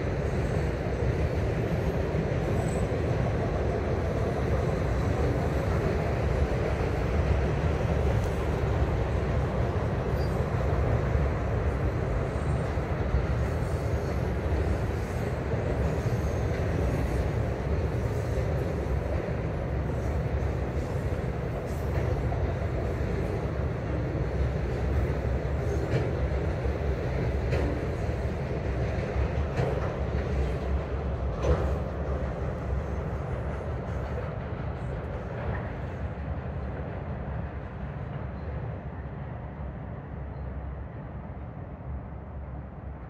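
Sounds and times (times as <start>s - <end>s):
freight train wheels on rails: 0.0s - 43.0s.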